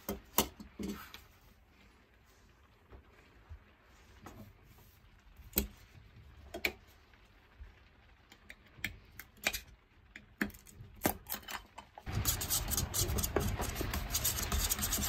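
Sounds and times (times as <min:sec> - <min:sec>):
paint stirring scrape: 0:12.1 - 0:15.0.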